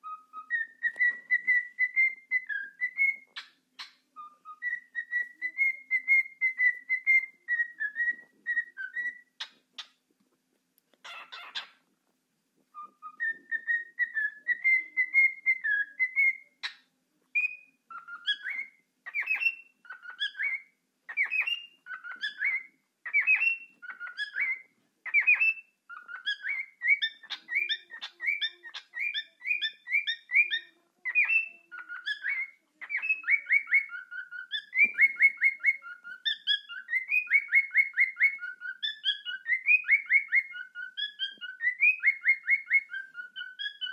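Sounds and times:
cockatiel whistling: 0:00.0 - 0:09.9, 0:12.7 - 0:16.8, 0:17.4 - 0:43.9.

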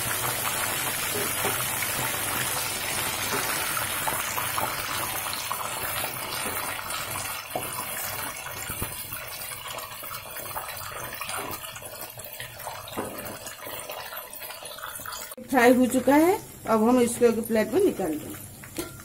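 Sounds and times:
food sizzling in deep oil: 0:00.0 - 0:19.0
metal skimmer clicking on pan: 0:18.8 - 0:19.0.

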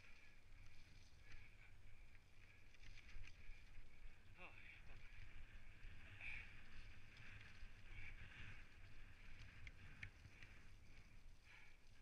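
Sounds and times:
mountain bike rolling on dirt: 0:00.0 - 0:12.0
bike clicks and rattles: 0:02.1 - 0:03.9, 0:06.6 - 0:12.0.

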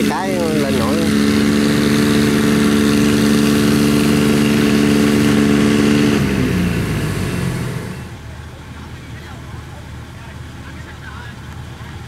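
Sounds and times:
diesel engine at high revs: 0:00.0 - 0:08.9.

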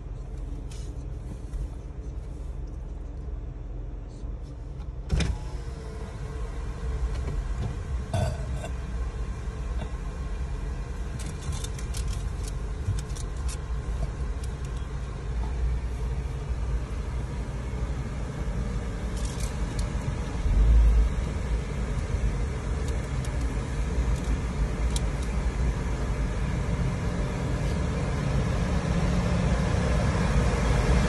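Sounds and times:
car idling from inside cabin: 0:00.0 - 0:31.0.

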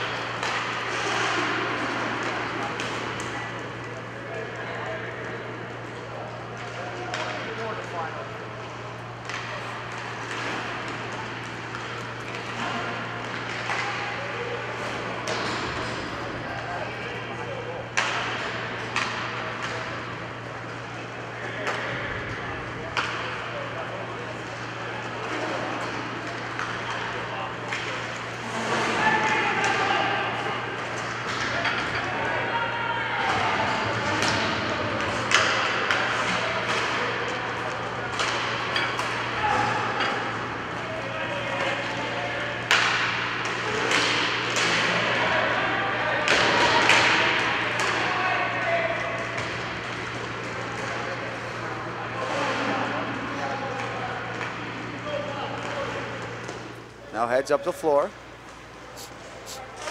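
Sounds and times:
clacks of sticks and puck: 0:00.0 - 0:04.6, 0:05.2 - 0:08.0, 0:09.2 - 0:16.2, 0:17.6 - 0:22.3, 0:22.9 - 0:30.0, 0:30.7 - 0:32.2, 0:33.2 - 0:40.9, 0:41.5 - 0:48.1, 0:49.0 - 0:56.8
steady background hum: 0:00.0 - 0:59.9
hockey sticks and puck knocking: 0:18.0 - 0:19.7, 0:34.2 - 0:37.0, 0:42.7 - 0:44.9.

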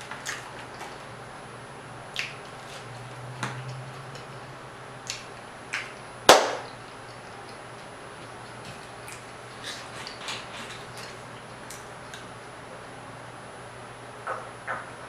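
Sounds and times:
loud snap: 0:05.8 - 0:06.7
person chewing food: 0:07.0 - 0:12.4.

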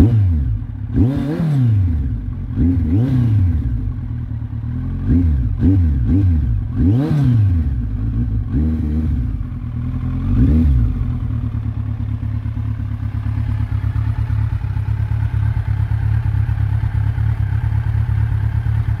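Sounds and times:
motorcycle engine idling: 0:00.0 - 0:19.0.

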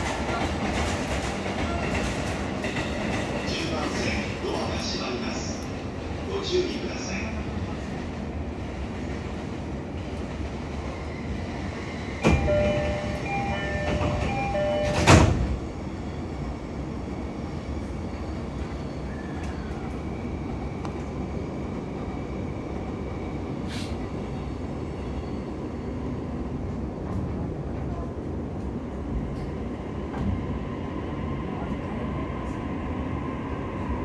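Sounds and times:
train running noise: 0:00.0 - 0:34.0
train doors shutting: 0:11.8 - 0:15.8, 0:23.6 - 0:24.2, 0:29.2 - 0:30.8
door-closing chime: 0:12.2 - 0:15.4.

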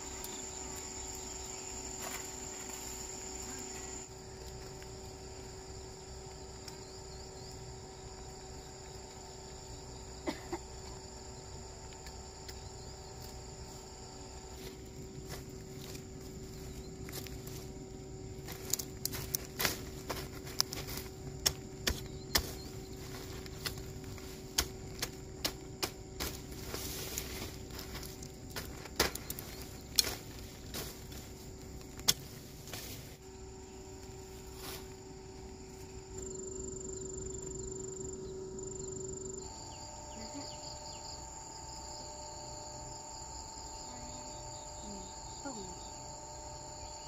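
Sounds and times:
insects calling: 0:00.0 - 0:47.0
machete chopping stems: 0:19.6 - 0:27.4.

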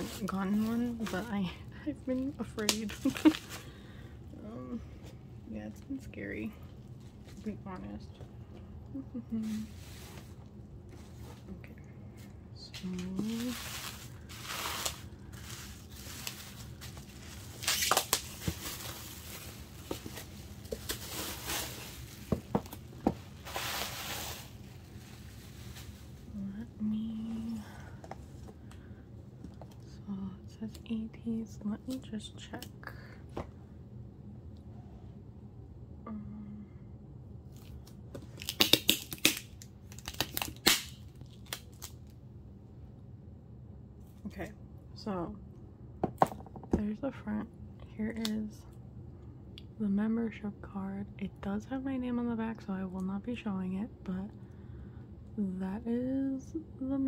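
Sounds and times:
bubble wrap rustling and crinkling: 0:00.0 - 0:03.7, 0:12.6 - 0:27.7, 0:37.5 - 0:42.2.

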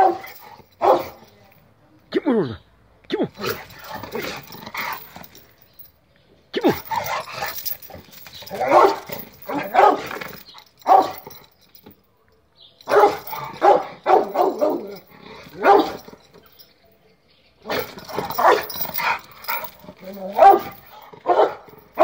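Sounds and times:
dog barking: 0:00.0 - 0:01.2, 0:08.6 - 0:10.2, 0:10.8 - 0:11.2, 0:12.9 - 0:15.0, 0:15.6 - 0:16.0, 0:17.7 - 0:18.7, 0:20.3 - 0:22.0.

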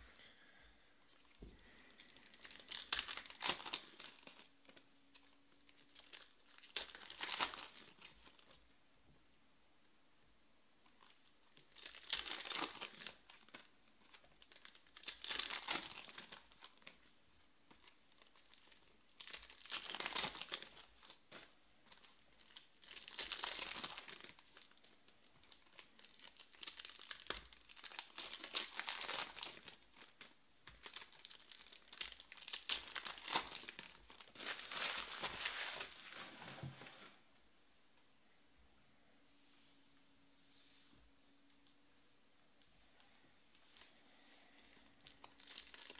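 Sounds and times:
foil wrappers tearing and crinkling: 0:01.6 - 0:08.5, 0:11.6 - 0:17.0, 0:17.8 - 0:36.2, 0:45.0 - 0:45.9.

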